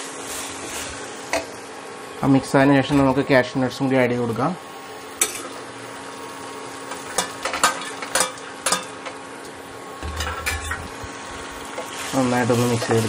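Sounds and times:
low sizzle: 0.0 - 13.0
spatula stirring in frying pan: 10.2 - 13.0.

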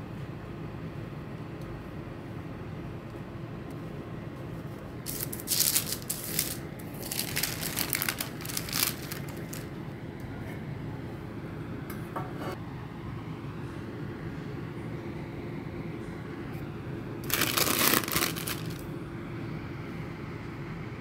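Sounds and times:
steady low hum: 0.0 - 21.0
baking paper rustling: 5.1 - 9.8, 17.2 - 18.9.

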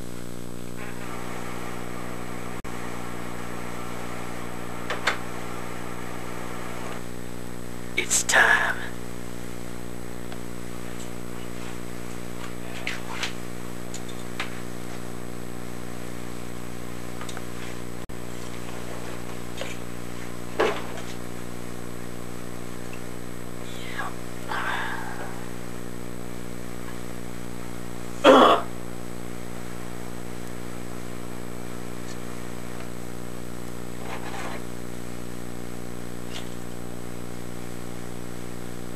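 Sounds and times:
low electrical hum: 0.0 - 38.9
person coughing: 28.2 - 28.7.

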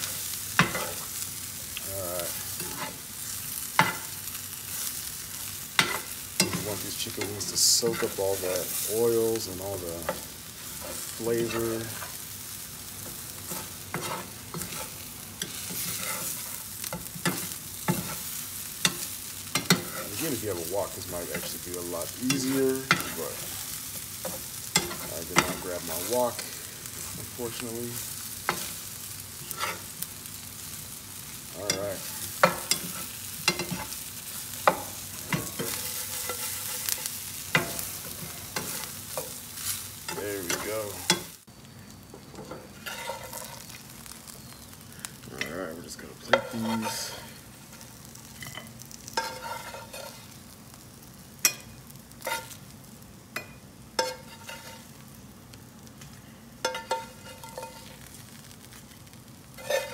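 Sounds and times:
oil sizzling in a frying pan: 0.0 - 59.9
metal utensil scraping a pan: 0.6 - 1.2, 2.3 - 3.0, 3.8 - 4.2, 5.8 - 9.1, 13.5 - 26.5, 28.5 - 30.0, 31.6 - 34.0, 34.6 - 41.4, 42.4 - 43.7, 46.2 - 50.4, 51.4 - 52.6, 53.4 - 54.9, 56.6 - 58.1, 59.6 - 59.9.

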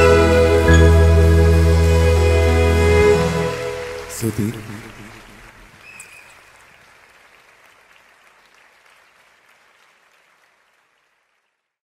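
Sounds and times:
audience applauding: 2.7 - 11.8.

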